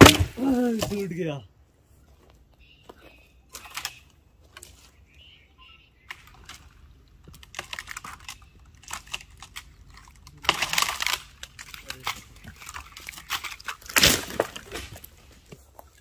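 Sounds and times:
twigs crackling and snapping: 0:03.5 - 0:05.2, 0:06.1 - 0:16.0.

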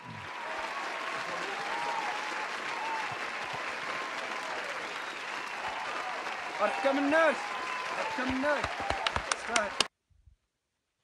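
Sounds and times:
crowd clapping: 0:00.0 - 0:09.9
faint cheering voices: 0:00.0 - 0:09.9.

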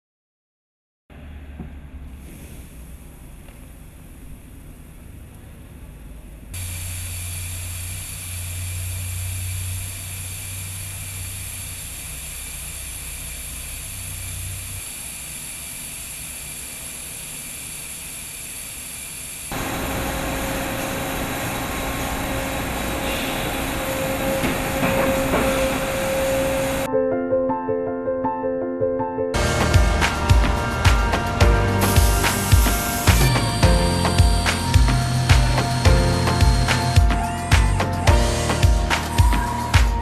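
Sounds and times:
steady machine hum with tones: 0:02.7 - 0:26.9, 0:29.4 - 0:40.0
machinery hiss with high whine: 0:06.6 - 0:26.9, 0:29.4 - 0:37.5.

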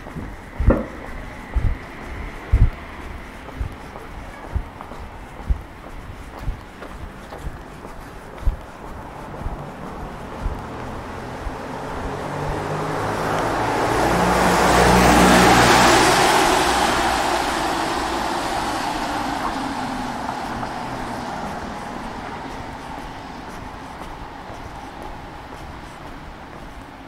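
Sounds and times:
low car engine: 0:00.0 - 0:27.0
tyres hissing on wet road: 0:09.2 - 0:27.0.

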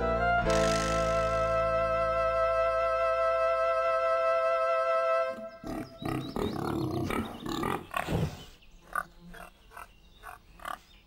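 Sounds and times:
pigs grunting and oinking: 0:05.5 - 0:10.8.

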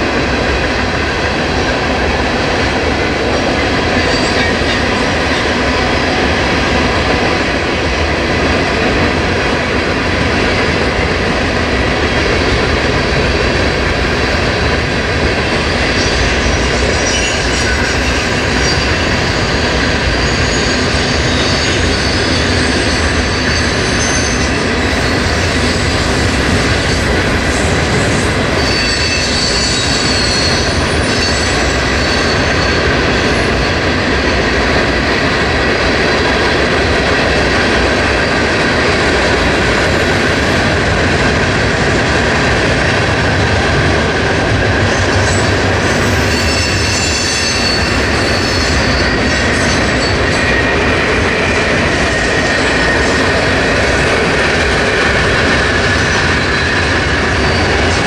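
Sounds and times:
train cars rolling on rails: 0:00.0 - 0:58.0
wheel squeal: 0:28.6 - 0:33.7, 0:45.3 - 0:50.7.

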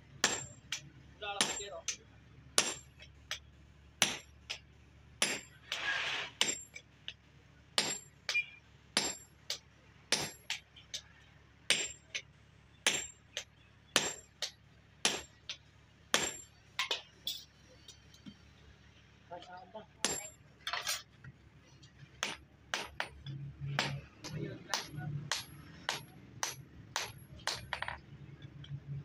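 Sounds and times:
hammer striking metal on anvil: 0:00.2 - 0:00.8, 0:01.4 - 0:02.0, 0:02.6 - 0:03.4, 0:05.2 - 0:05.5, 0:07.8 - 0:11.0, 0:11.7 - 0:12.2, 0:12.8 - 0:17.6, 0:20.0 - 0:20.8, 0:22.2 - 0:28.0.

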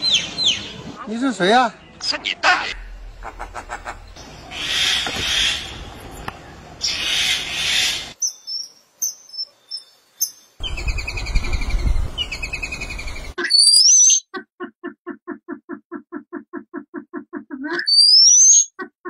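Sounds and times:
harsh raspy bird calls: 0:00.0 - 0:08.2.

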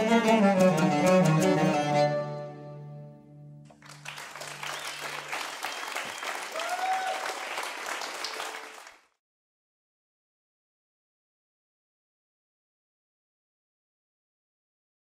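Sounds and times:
violin lute and clarinet trio: 0:00.0 - 0:03.6
audience applause: 0:03.7 - 0:09.2.

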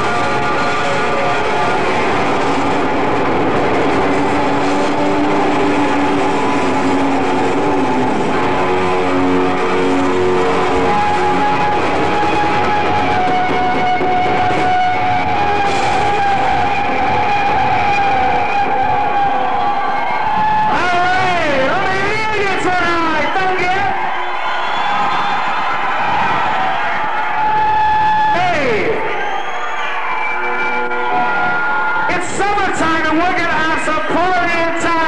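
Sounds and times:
drums and cymbals: 0:00.0 - 0:19.7
distorted electric guitar: 0:00.0 - 0:24.1, 0:24.9 - 0:35.0.

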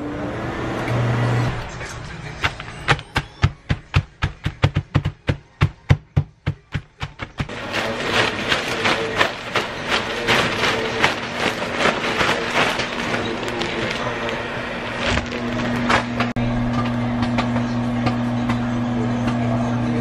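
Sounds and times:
plastic bag crinkling and crunching: 0:07.5 - 0:16.4.

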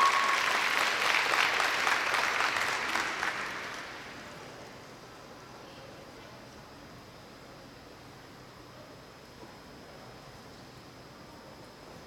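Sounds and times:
audience applauding: 0:00.0 - 0:04.3.

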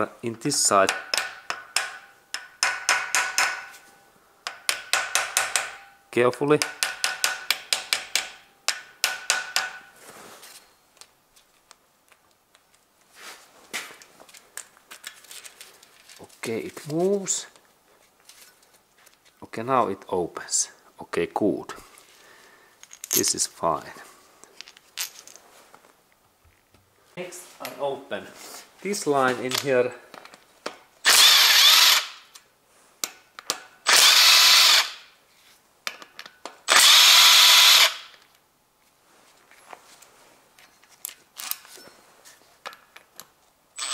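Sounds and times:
small hammer tapping metal: 0:00.9 - 0:03.8, 0:04.4 - 0:06.0, 0:06.6 - 0:09.9
soft rustle: 0:09.9 - 0:19.5, 0:21.8 - 0:30.6, 0:32.6 - 0:33.0, 0:35.2 - 0:35.8, 0:38.7 - 0:42.7
cordless power driver spinning: 0:31.1 - 0:32.1, 0:33.9 - 0:35.0, 0:36.7 - 0:38.0.

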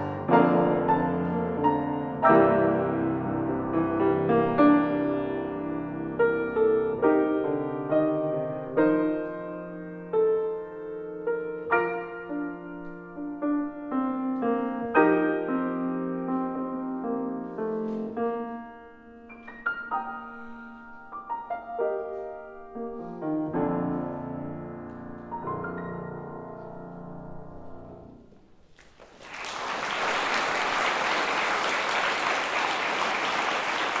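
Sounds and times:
piano chords ringing: 0:00.0 - 0:28.4
audience applause: 0:28.8 - 0:34.0.

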